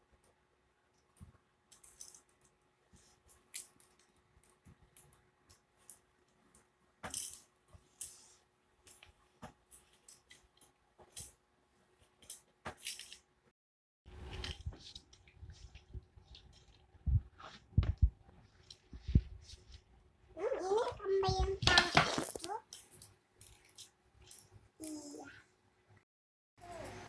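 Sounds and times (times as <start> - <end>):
plastic toys clicking and rattling: 1.7 - 2.5.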